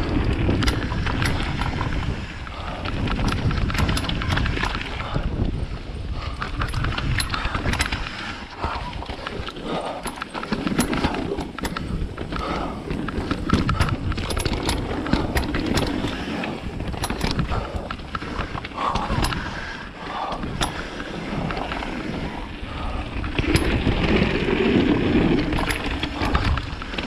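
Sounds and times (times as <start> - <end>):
bike rattling and clicking: 0.0 - 27.0
bike tyres rushing over ground: 0.0 - 27.0.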